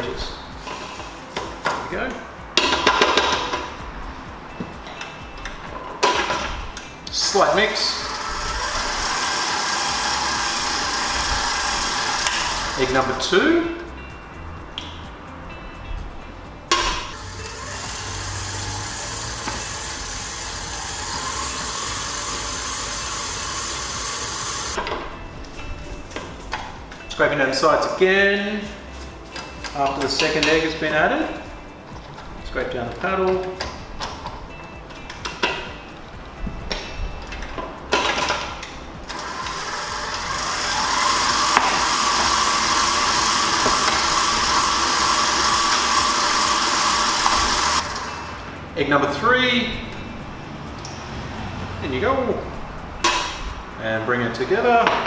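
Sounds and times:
stand mixer motor whirring: 7.9s - 12.9s, 17.2s - 24.8s, 39.1s - 48.2s.

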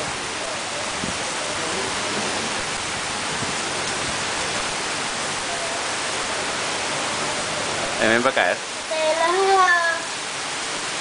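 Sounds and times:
heavy rain pouring on paving: 0.0s - 11.0s.

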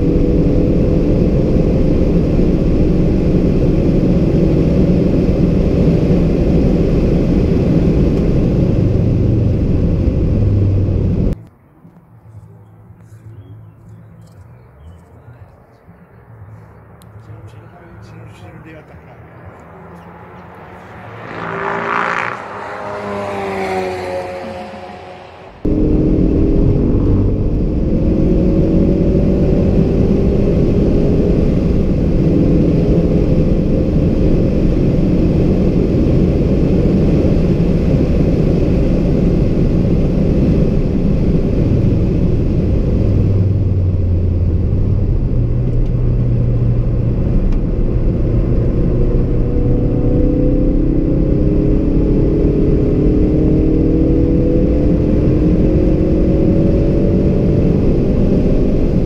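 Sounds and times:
car engine accelerating: 0.0s - 59.0s
tyre and road noise: 0.0s - 59.0s.

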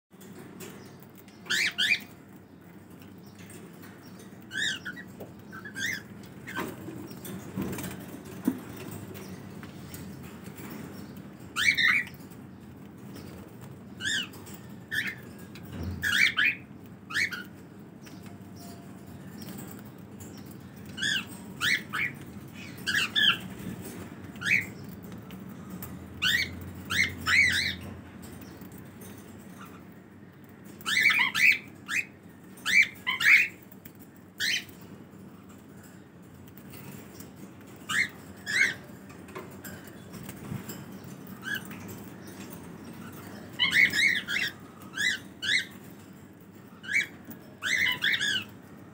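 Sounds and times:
cockatiels chirping: 1.4s - 2.1s, 4.4s - 7.9s, 11.6s - 12.2s, 14.0s - 17.5s, 20.9s - 24.7s, 26.2s - 27.9s, 30.8s - 33.6s, 34.4s - 34.8s, 37.8s - 38.8s, 43.0s - 45.8s, 46.8s - 48.5s.

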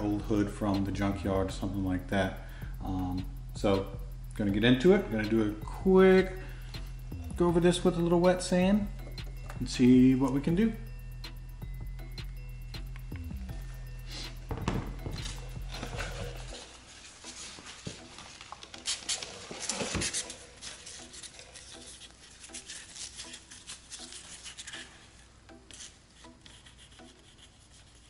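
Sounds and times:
gloved hands rubbing and scuffing: 15.2s - 27.3s.

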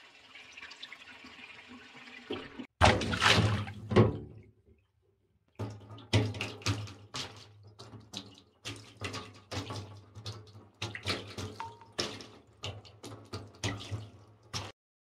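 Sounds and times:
water splashing on hard surface: 2.3s - 4.4s, 5.6s - 14.8s.

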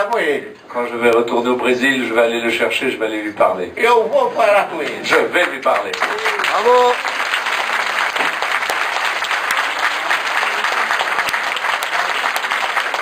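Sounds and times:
audience applauding: 4.8s - 13.0s.

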